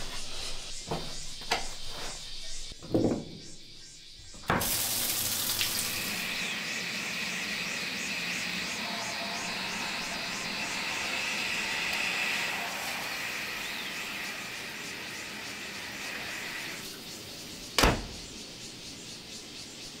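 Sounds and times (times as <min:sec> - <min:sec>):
high-pitched hiss: 0:03.8 - 0:19.8
door slamming shut: 0:17.8 - 0:18.3.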